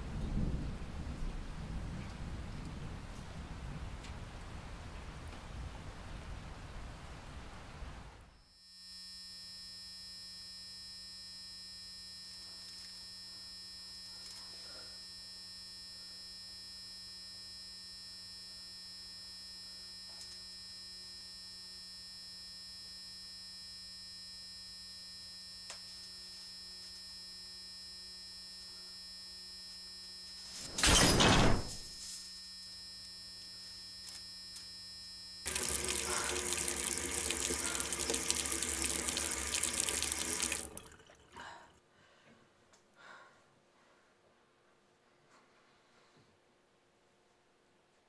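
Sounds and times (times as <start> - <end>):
electrical hum: 0.1 - 42.2
thin high whine: 8.2 - 41.1.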